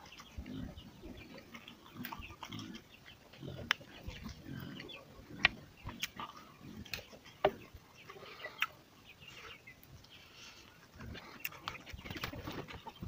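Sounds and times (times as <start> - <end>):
chewing and lip smacks: 1.4 - 7.4, 8.5 - 8.8.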